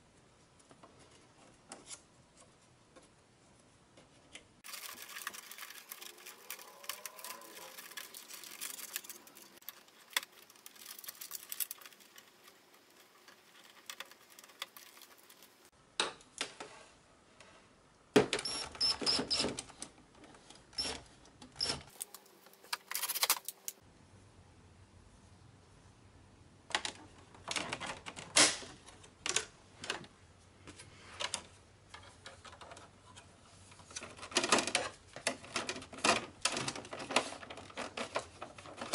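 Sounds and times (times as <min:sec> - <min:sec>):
plastic printer parts clicking: 0:04.7 - 0:15.5, 0:33.8 - 0:38.9.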